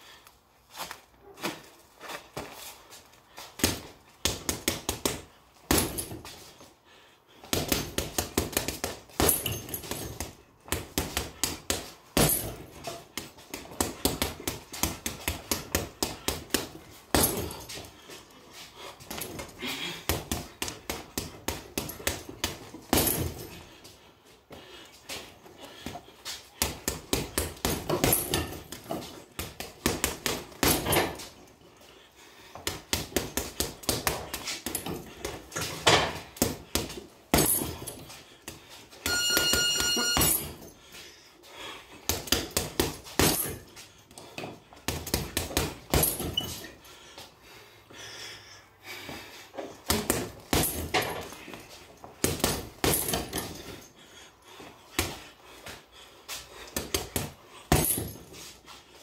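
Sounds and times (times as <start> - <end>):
punches thudding on punching bag: 3.6 - 6.3, 7.4 - 17.9, 19.0 - 23.6, 26.6 - 31.3, 32.6 - 38.1, 42.1 - 43.7, 44.4 - 46.6, 49.8 - 51.4, 52.2 - 53.8, 56.7 - 58.3
high beep: 39.1 - 40.4.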